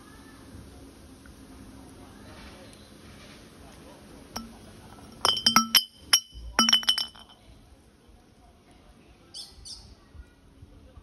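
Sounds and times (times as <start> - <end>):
glass bottle knocking on concrete: 4.4 - 7.4.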